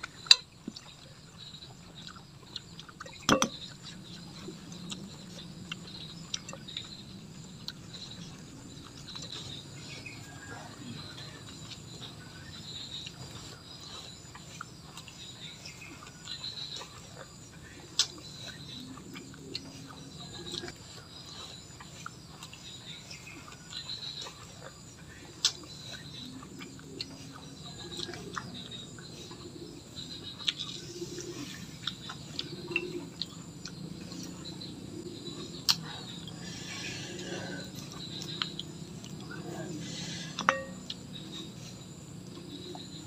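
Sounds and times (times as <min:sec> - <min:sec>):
person chewing: 0:01.7 - 0:10.2, 0:30.4 - 0:34.5, 0:37.2 - 0:41.0.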